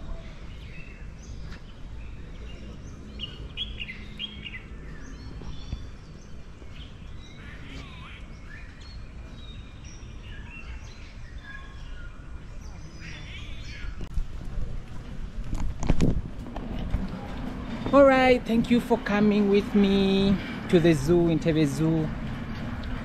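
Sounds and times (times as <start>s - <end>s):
birds chirping and whistling: 0.2s - 14.1s.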